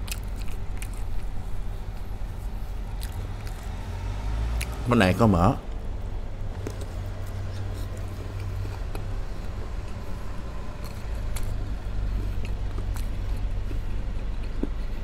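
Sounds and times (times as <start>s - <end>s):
steady low hum: 0.0s - 15.0s
mouth clicks from chewing: 12.3s - 15.0s.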